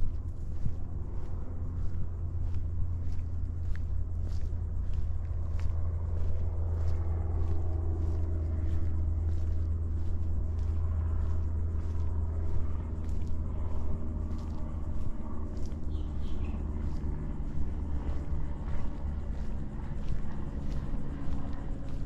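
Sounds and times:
distant road traffic rumble: 0.0s - 22.0s
footsteps on a trail: 0.0s - 22.0s
bird chirping: 15.8s - 17.0s.

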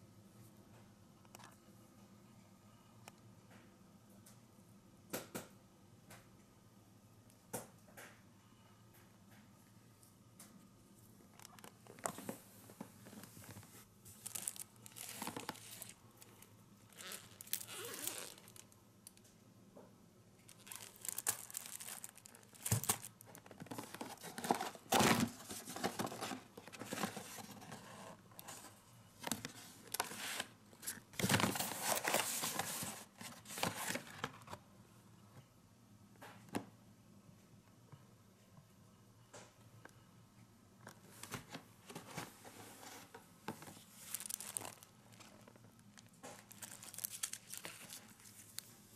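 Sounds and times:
plastic shrink-wrap crinkling: 14.1s - 18.8s, 20.4s - 27.8s, 43.6s - 48.7s.

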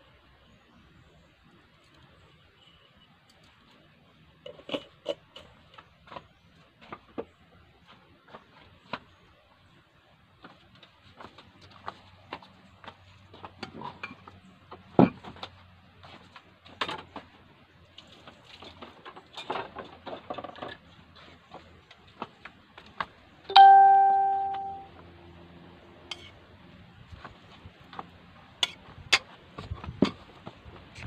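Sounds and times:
pot struck and ringing: 23.5s - 24.9s.

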